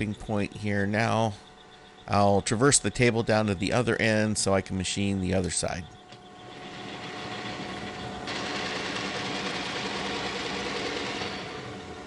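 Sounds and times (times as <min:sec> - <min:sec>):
milling machine whirring: 0:05.0 - 0:12.0.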